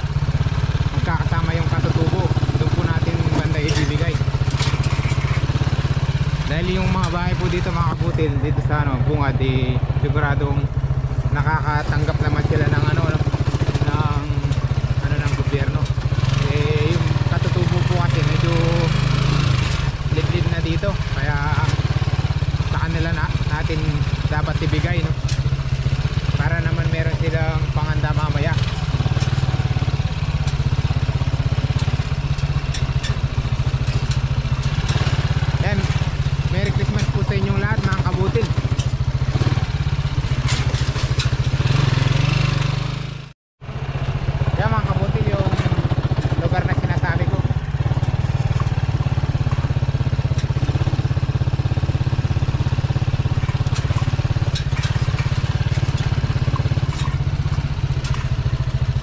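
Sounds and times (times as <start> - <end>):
motorcycle engine running: 0.0 - 59.0
light ticks and rattles: 11.6 - 42.7, 45.2 - 59.0
light clicks and rattles: 53.3 - 59.0.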